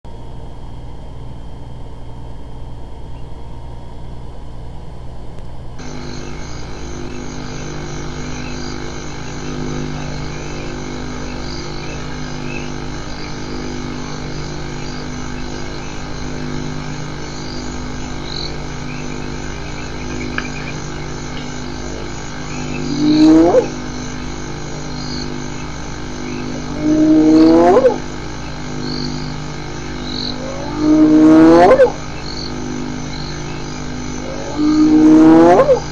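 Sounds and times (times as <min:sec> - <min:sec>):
low hum: 0:00.1 - 0:35.9
hyena whooping: 0:26.8 - 0:28.0, 0:30.3 - 0:32.0.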